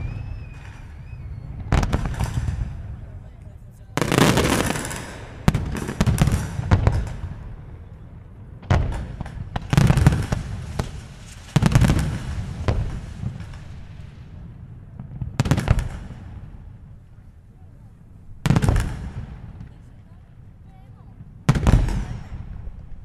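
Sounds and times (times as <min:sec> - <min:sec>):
firework shells bursting: 0:04.0 - 0:07.4.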